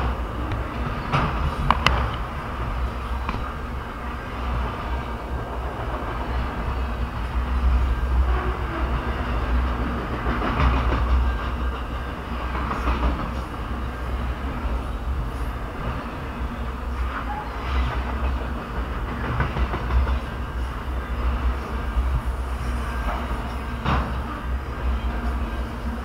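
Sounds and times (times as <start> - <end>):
freight train wheels rumbling: 0.0 - 26.0.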